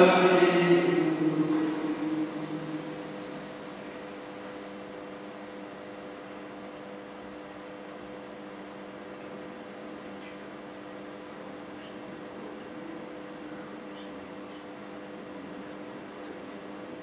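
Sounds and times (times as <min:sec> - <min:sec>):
sung chant: 0:00.0 - 0:04.8
room tone hiss and hum: 0:00.0 - 0:17.0.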